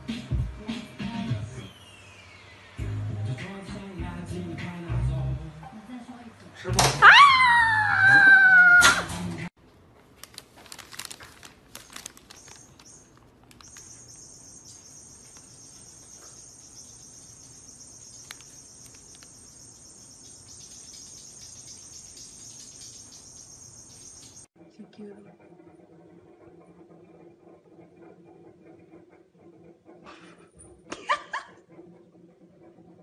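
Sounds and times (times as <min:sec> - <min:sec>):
loud high-pitched cry: 0:07.0 - 0:09.1
faint clicks and rustles: 0:09.6 - 0:16.5, 0:17.9 - 0:19.5.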